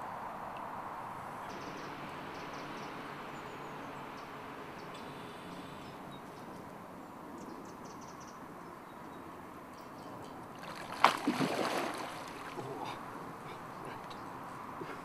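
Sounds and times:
fish splashing in water: 10.6 - 13.0.

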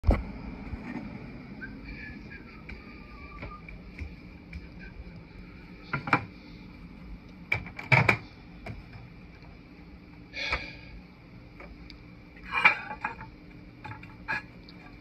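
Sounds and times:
faint high-pitched whine: 0.0 - 15.0
mug clattering on turntable: 12.4 - 14.5.

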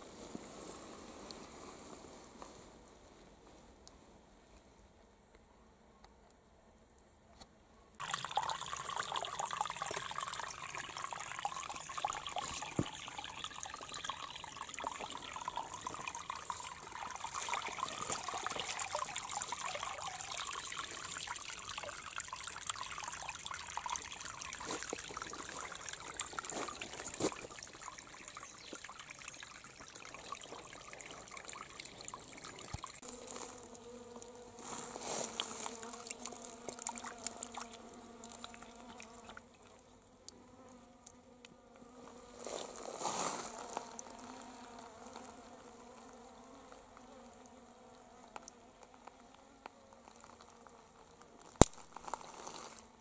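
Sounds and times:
water trickling into a pool: 8.0 - 34.4, 35.1 - 39.9, 43.2 - 46.2, 47.0 - 48.9
insect buzzing: 8.0 - 53.0.

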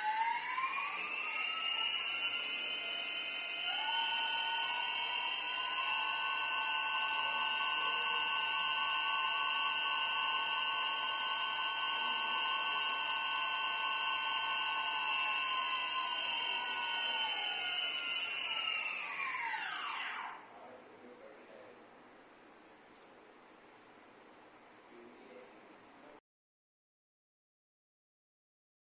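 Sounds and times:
drone motors whining: 0.0 - 20.5.

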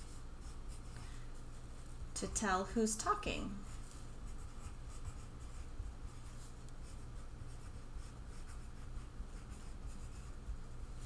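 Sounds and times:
steady low hum: 0.0 - 11.0
pencil writing on paper: 3.7 - 10.6.

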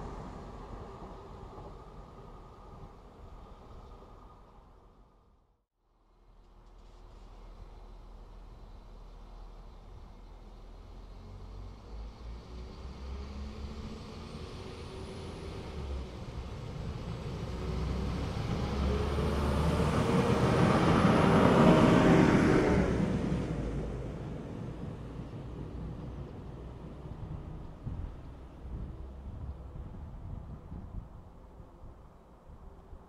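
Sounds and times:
diesel train engine: 0.0 - 5.1, 6.0 - 33.0
wheels on rail: 6.2 - 33.0.

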